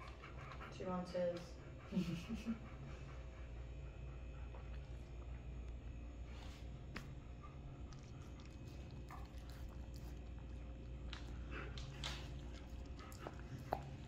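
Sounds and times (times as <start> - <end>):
dog licking a mat: 6.4 - 14.0.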